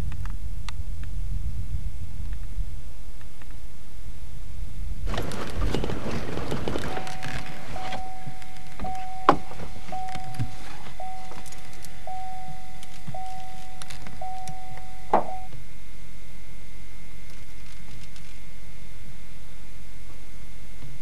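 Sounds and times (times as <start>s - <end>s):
pulsing electronic tone: 6.9s - 17.2s.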